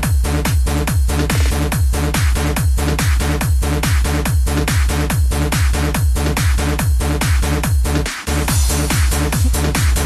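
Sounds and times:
electronic dance music: 6.5 - 10.0.

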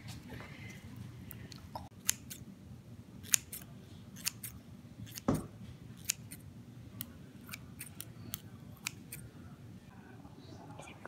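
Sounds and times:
scissors snipping: 1.3 - 2.4, 3.2 - 5.3, 6.0 - 6.4, 7.0 - 9.2.

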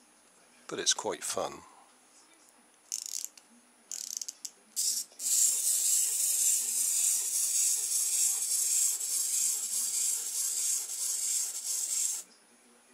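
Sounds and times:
clockwork toy winding clicks: 2.9 - 12.2
clockwork motor whirring: 4.8 - 12.2.

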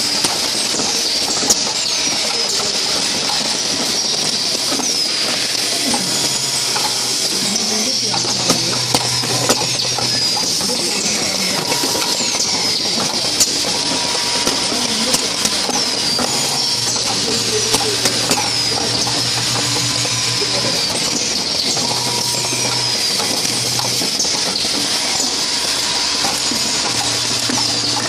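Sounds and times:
machine hiss and drone: 0.0 - 28.0
sharp machine clicks: 0.0 - 28.0
low hum: 5.7 - 28.0.

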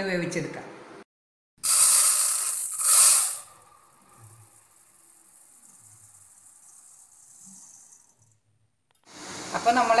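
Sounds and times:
rice pouring into steel bowl: 1.6 - 8.4.

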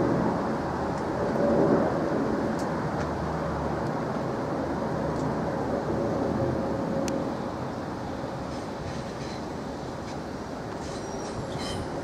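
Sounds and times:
jet airliner flying overhead: 0.0 - 12.0.

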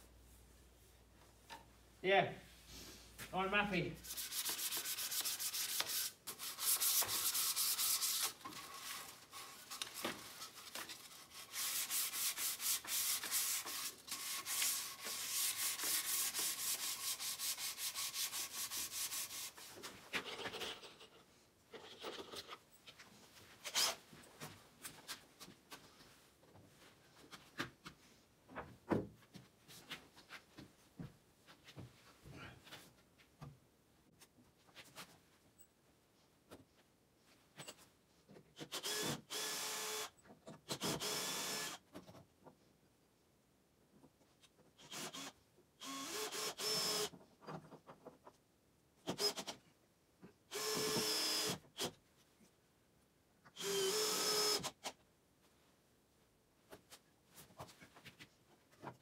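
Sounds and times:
sandpaper rubbing on wood: 4.0 - 9.8, 11.2 - 19.7.

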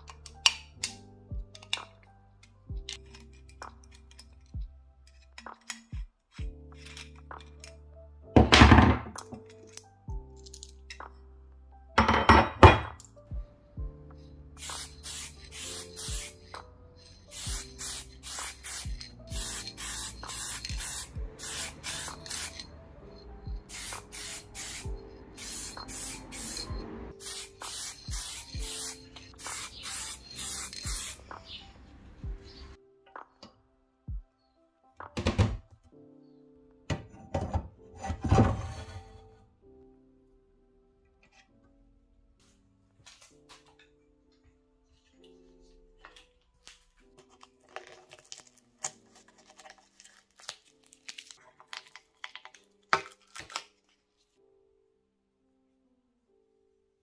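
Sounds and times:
lofi hip-hop beat: 0.0 - 9.5, 10.1 - 38.6, 42.4 - 47.2
spray can hissing bursts: 14.6 - 16.6, 17.3 - 22.6, 23.7 - 31.6
masking tape peeling and crinkling: 46.6 - 54.0.

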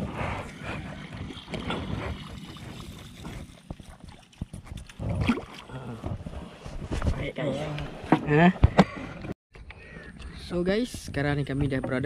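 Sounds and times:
water sloshing: 0.0 - 6.8.

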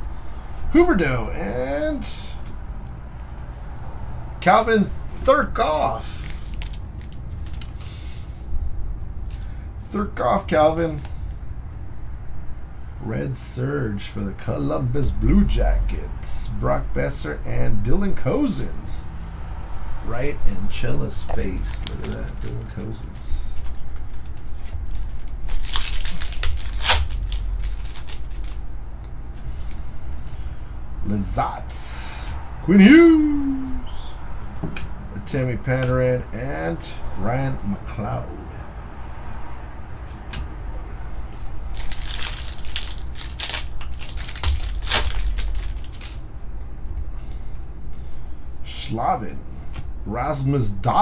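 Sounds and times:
plastic sleeve rustling and crinkling: 6.0 - 8.3, 21.6 - 28.7, 41.3 - 46.2.

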